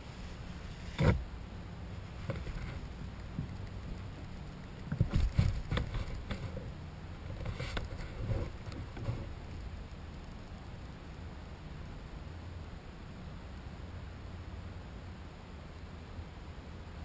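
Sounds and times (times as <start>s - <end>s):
steady low rumble: 0.0s - 17.0s
knocks and rustles on microphone: 2.1s - 4.1s, 4.8s - 9.6s.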